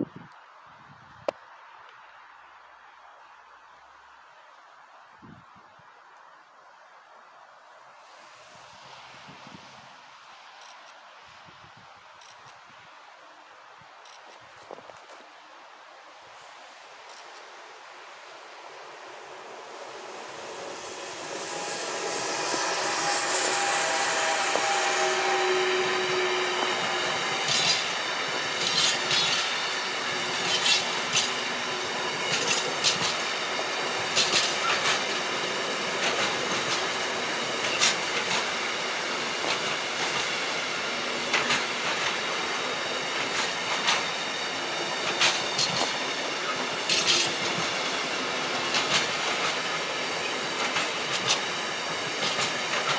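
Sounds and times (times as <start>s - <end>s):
electric locomotive passing: 6.4s - 52.9s
freight train rumbling past: 15.9s - 52.9s
wheels clicking over rail joints: 28.6s - 29.6s, 30.3s - 31.4s, 32.3s - 33.2s, 34.1s - 35.2s, 36.0s - 38.5s, 45.0s - 47.9s, 48.5s - 52.9s.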